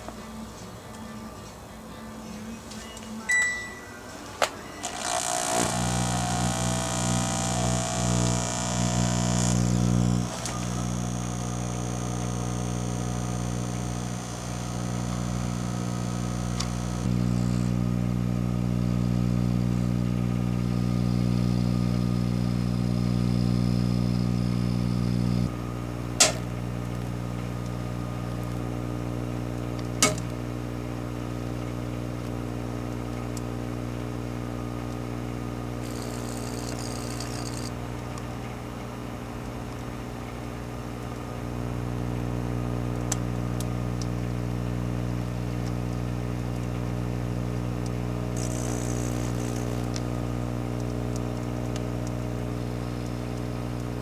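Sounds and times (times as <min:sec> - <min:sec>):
microwave oven humming: 0:00.0 - 0:54.0
sharp electrical snaps: 0:04.8 - 0:17.8, 0:29.8 - 0:30.4, 0:47.7 - 0:54.0.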